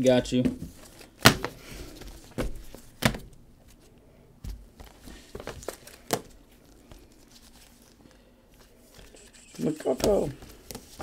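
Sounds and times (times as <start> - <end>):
trading cards rustling: 4.8 - 11.0.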